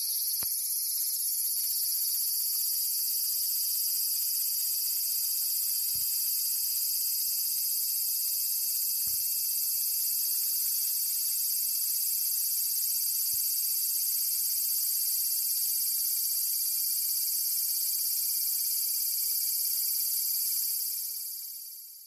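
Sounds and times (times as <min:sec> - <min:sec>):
cicadas buzzing: 0:00.0 - 0:12.8.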